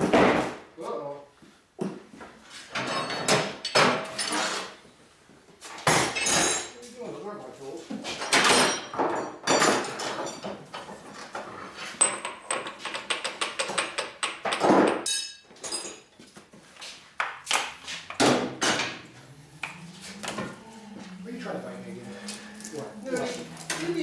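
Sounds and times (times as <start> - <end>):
metal tools knocking: 12.0 - 16.1.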